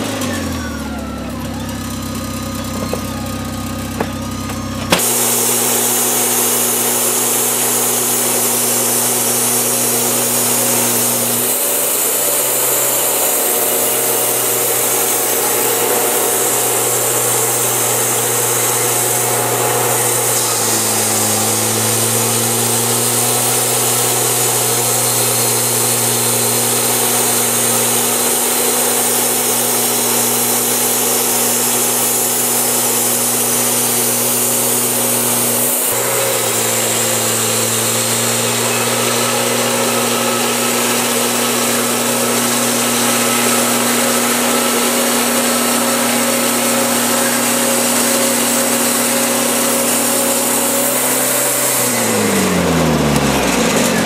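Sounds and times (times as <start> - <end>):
sawmill engine running under load: 0.0 - 54.0
band blade hissing through wood: 4.9 - 52.5.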